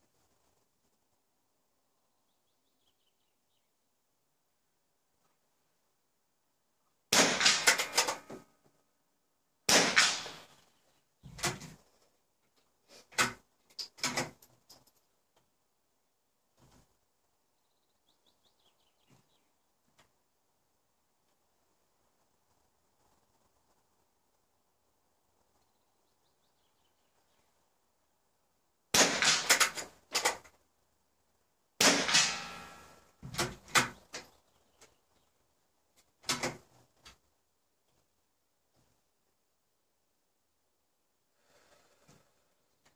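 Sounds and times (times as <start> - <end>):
rifle shots echoing: 7.1 - 8.2, 9.7 - 10.6, 29.0 - 29.9, 31.8 - 33.0.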